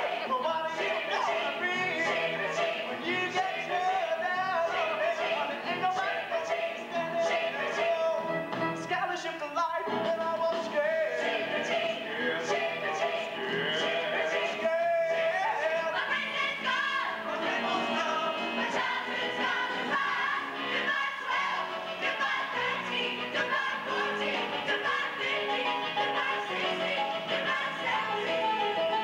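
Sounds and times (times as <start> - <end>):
people singing: 0.0 - 8.4, 10.1 - 29.0
stage band playing: 7.0 - 11.2.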